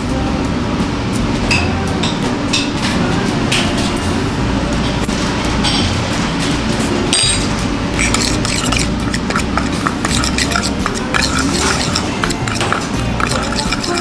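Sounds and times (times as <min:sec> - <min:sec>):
utensils clinking against dishes: 0:01.4 - 0:14.0.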